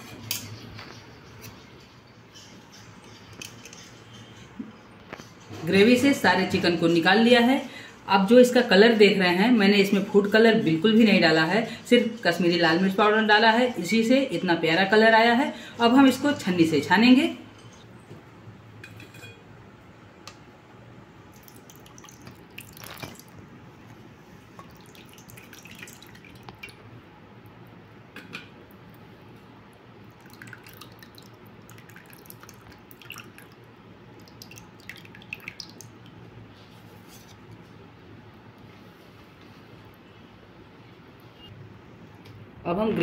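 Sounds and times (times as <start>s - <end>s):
gravy dripping through a strainer: 21.3s - 23.4s, 24.4s - 26.9s, 30.0s - 36.4s
small splashes and taps: 21.4s - 23.4s, 24.6s - 26.8s, 34.2s - 36.2s.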